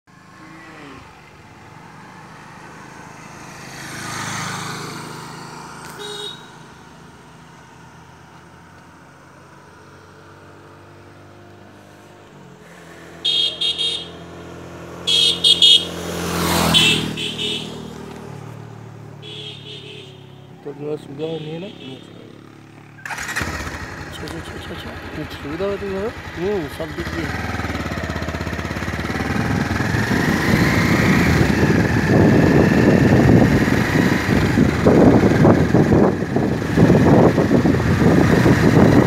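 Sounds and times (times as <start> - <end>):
vehicles passing: 0.1 - 39.0
short horn beeps: 5.9 - 6.6, 13.2 - 14.2, 15.1 - 16.0
motorcycle engine idling: 21.8 - 30.3.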